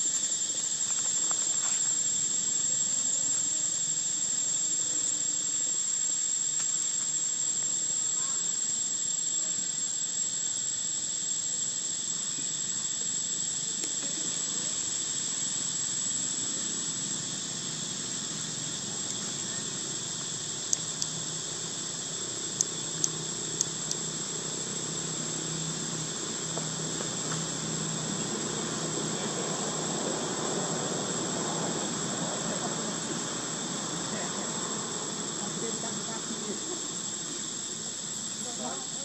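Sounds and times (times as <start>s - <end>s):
insects droning: 0.0s - 39.0s
sharp clicks: 20.7s - 21.2s, 22.6s - 24.0s.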